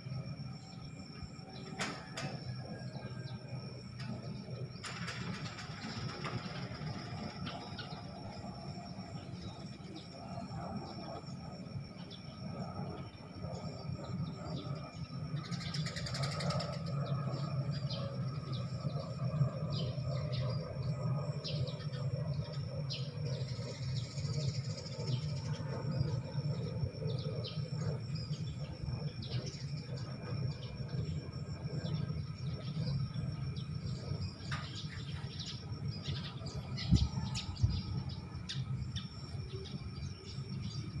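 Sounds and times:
sparrows chirping: 0.1s - 41.0s
low background rumble: 16.4s - 41.0s.

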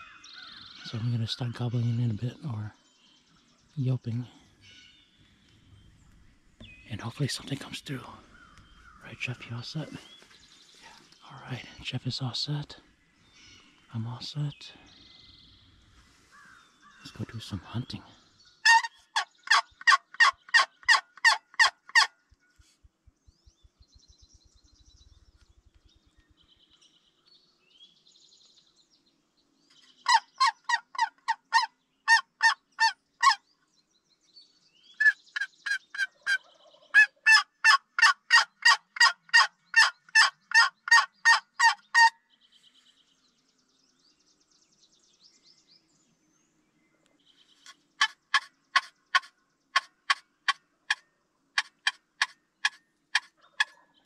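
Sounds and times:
turkey call yelps: 18.6s - 22.1s, 30.1s - 33.4s, 35.0s - 42.2s, 51.6s - 53.8s.

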